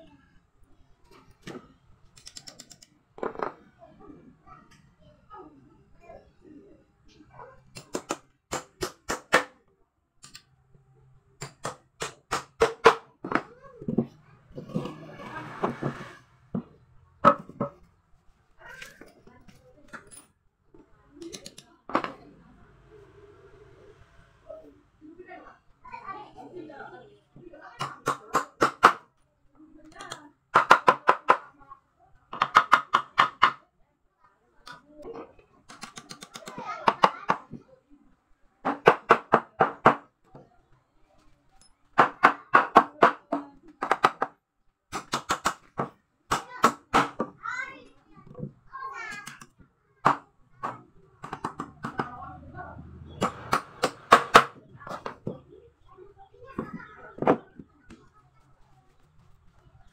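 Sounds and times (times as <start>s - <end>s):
wood scraping: 13.9s - 17.8s
hammer driving nail into wood: 53.2s - 54.6s.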